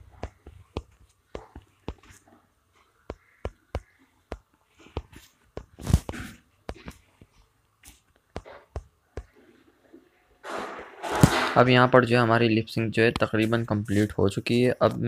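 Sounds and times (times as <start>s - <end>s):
fingertip taps on touchscreen: 0.2s - 2.2s, 3.0s - 5.8s, 8.2s - 9.4s.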